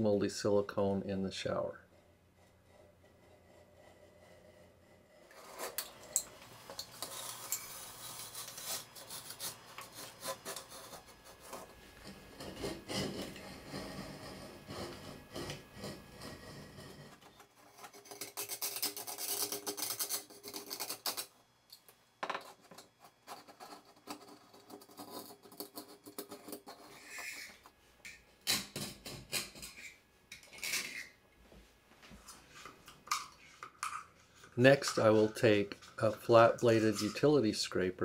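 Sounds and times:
knife scraping caulk: 7.0 - 17.1.

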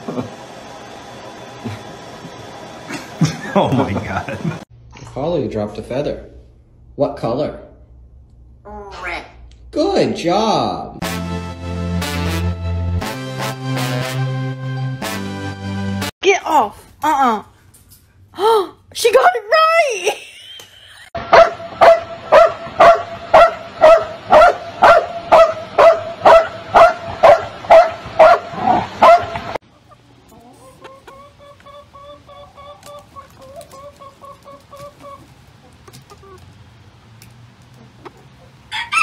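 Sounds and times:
dog barking: 21.3 - 29.4
hens clucking: 29.6 - 39.0.

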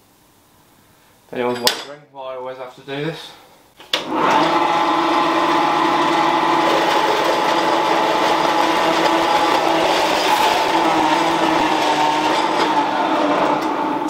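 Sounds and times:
workshop machine motor whining: 3.9 - 14.0.

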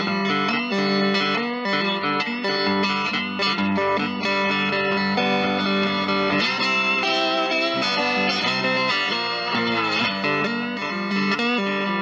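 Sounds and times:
electric guitar melody: 0.0 - 12.0.

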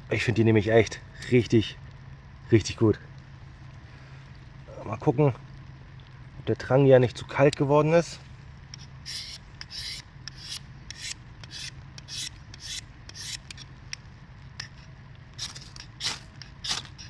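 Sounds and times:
fire steel scraped with striker: 8.8 - 13.7, 14.6 - 17.0.

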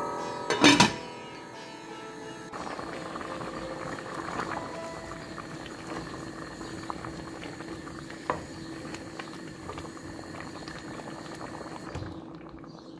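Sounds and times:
faint steady hum: 0.8 - 12.8
curry bubbling in metal pot: 2.5 - 12.9.

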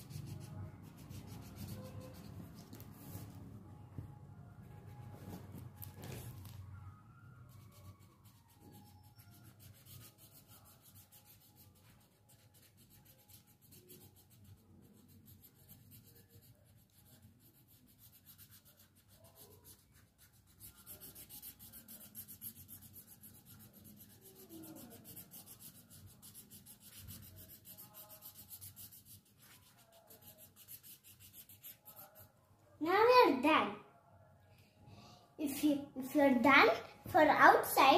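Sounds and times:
pencil scratching on paper: 0.0 - 3.6, 7.4 - 32.4.

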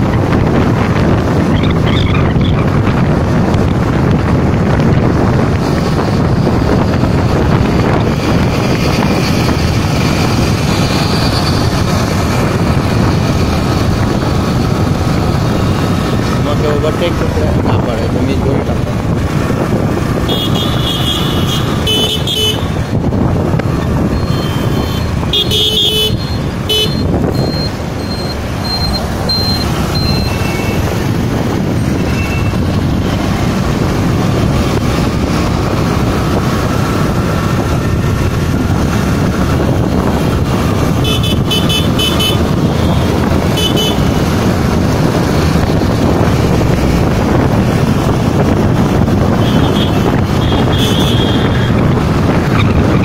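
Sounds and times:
engine and road noise: 0.0 - 53.0
car horn beeps: 20.3 - 22.7, 24.2 - 30.8, 32.0 - 32.6, 41.0 - 42.4, 43.5 - 44.1, 49.4 - 51.7.

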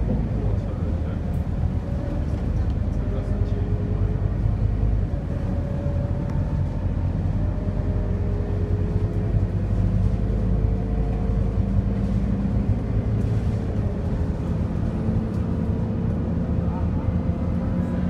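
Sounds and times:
bus engine drone: 0.0 - 18.0
road rumble: 0.0 - 18.0.

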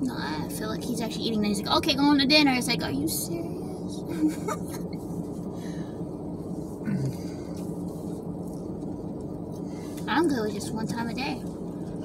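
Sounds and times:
car engine idling: 0.0 - 12.0
faint eating sounds: 6.4 - 10.1
person humming: 6.8 - 7.3.

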